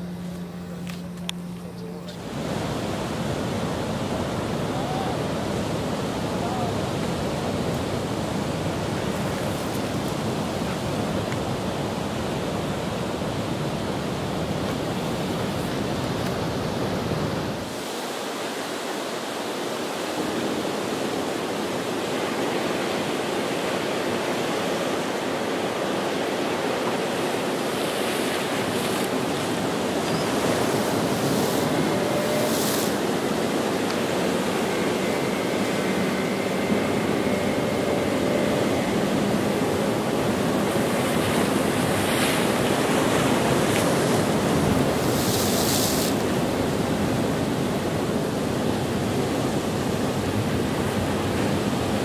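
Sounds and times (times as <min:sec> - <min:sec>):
surf breaking: 0:26.0 - 0:47.6.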